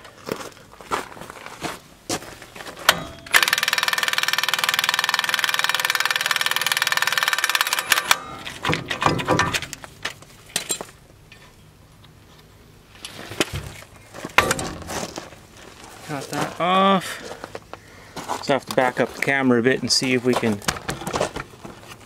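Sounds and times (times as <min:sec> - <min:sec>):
metal clicks and tool knocks: 0:02.9 - 0:03.6, 0:07.8 - 0:12.2
impact wrench hammering: 0:02.9 - 0:09.8, 0:14.4 - 0:15.1.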